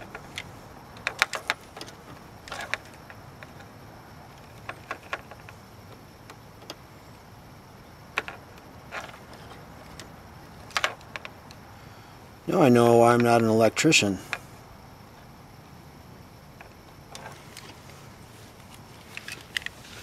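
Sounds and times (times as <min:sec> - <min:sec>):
faint steady hiss: 0:00.0 - 0:20.0.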